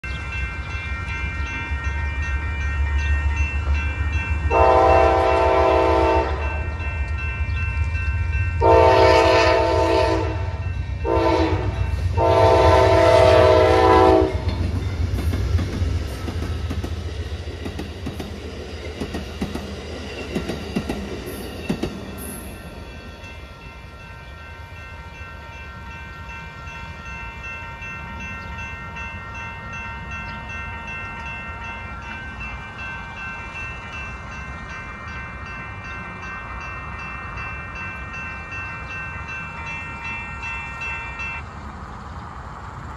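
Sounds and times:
crossing bell ringing: 0.0s - 41.5s
passenger cars running: 0.0s - 42.9s
train horn: 4.5s - 6.8s, 8.6s - 14.6s.

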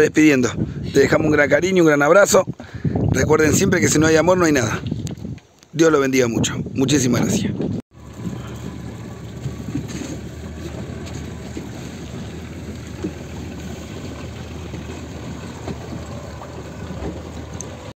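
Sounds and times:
wind: 0.0s - 18.0s
motorboat engine hum: 7.9s - 18.0s
water rushing: 7.9s - 18.0s.

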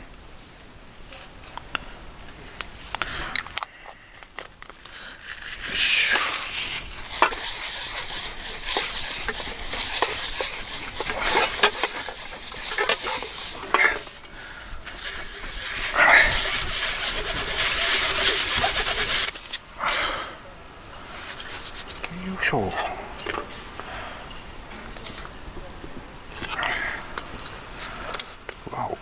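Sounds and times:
paper towel rubbing frying pan: 5.5s - 14.2s, 14.8s - 19.4s
pans clicking and knocking: 7.2s - 14.2s.

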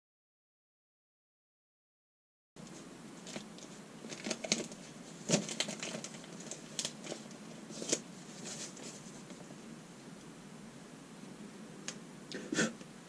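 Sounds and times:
paper crinkling: 2.6s - 9.5s.

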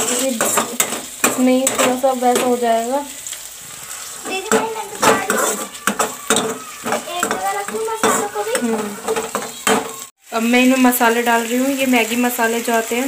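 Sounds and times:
metal ladle scraping a pan: 0.0s - 10.1s
vegetables sizzling in oil: 0.0s - 13.0s.

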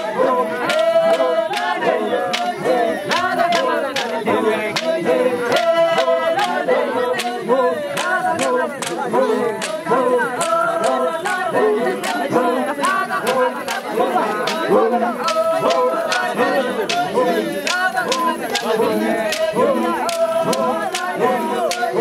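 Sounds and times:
group singing unaccompanied: 0.0s - 22.0s
sharp clap or stamp beat: 0.6s - 6.6s, 10.4s - 11.4s, 14.4s - 22.0s.

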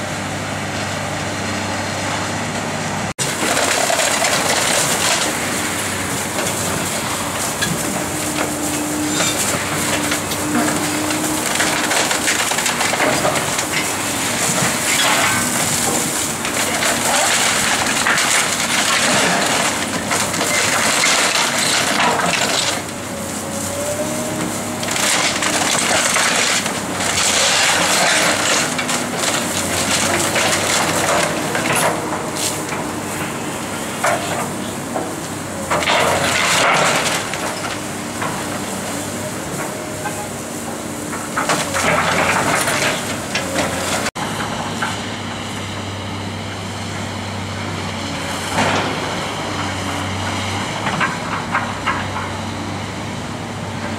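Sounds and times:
excavator engine running: 0.0s - 53.9s
brick and wood crunching: 3.2s - 32.4s.

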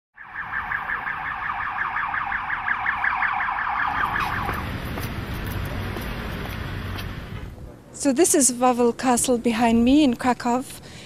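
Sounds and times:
police siren yelping: 0.2s - 4.7s.

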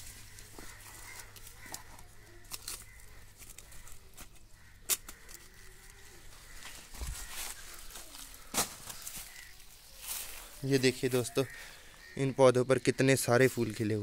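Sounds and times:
rustling leaves: 0.0s - 12.2s
sharp clicks of picking vegetables: 0.3s - 6.0s.

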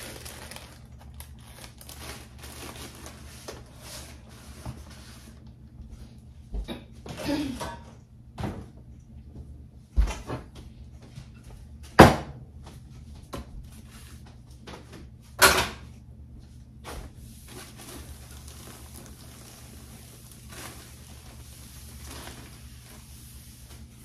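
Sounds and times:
cloth rubbing on countertop: 3.2s - 6.1s, 17.0s - 24.0s.

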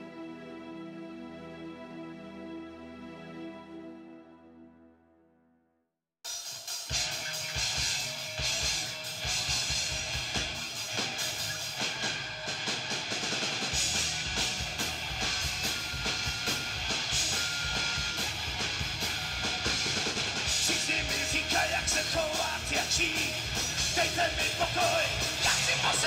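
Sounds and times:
rock band music: 6.3s - 26.0s.

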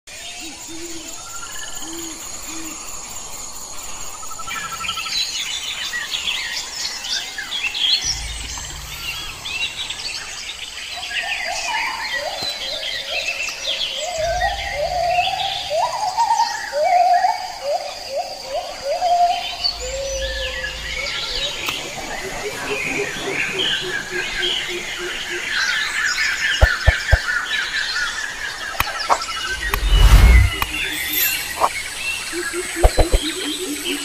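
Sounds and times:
birds chirping and calling: 8.0s - 34.0s.

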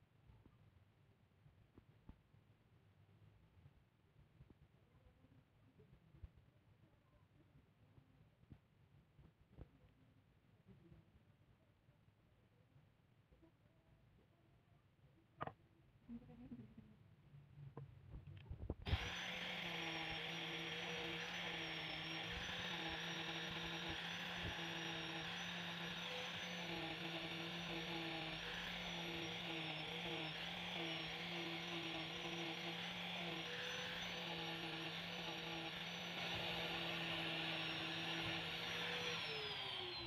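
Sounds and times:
angle grinder sanding wood: 18.9s - 40.0s.

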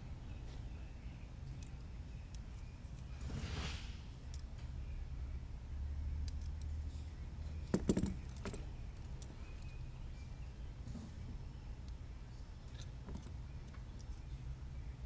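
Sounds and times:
low steady hum: 0.0s - 15.0s
hand tools and plastic clicking: 1.5s - 3.2s, 4.2s - 4.7s, 6.2s - 6.9s, 7.6s - 9.8s, 12.6s - 14.4s.

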